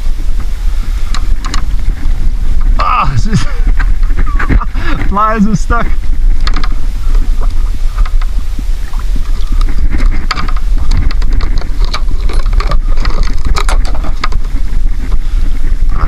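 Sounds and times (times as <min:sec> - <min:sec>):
wind buffeting microphone: 0:00.0 - 0:16.0
fishing tackle clicks and taps: 0:06.4 - 0:06.8.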